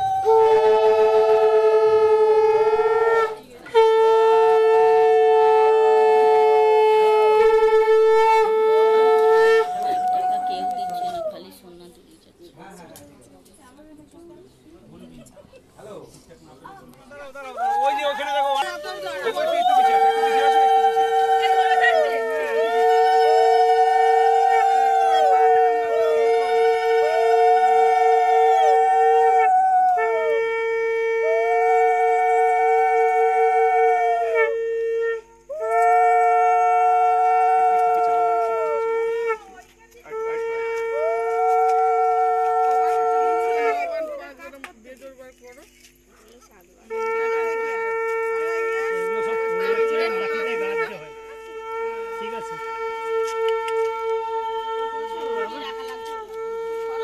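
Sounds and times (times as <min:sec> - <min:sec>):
low conch shell blast: 0:00.0 - 0:11.4, 0:17.6 - 0:44.2, 0:46.8 - 0:57.0
wavering higher conch tone: 0:00.0 - 0:11.4, 0:17.6 - 0:44.6, 0:46.2 - 0:57.0
women ululating: 0:09.4 - 0:11.5, 0:17.5 - 0:30.6, 0:31.2 - 0:34.6, 0:35.5 - 0:44.4, 0:52.0 - 0:57.0.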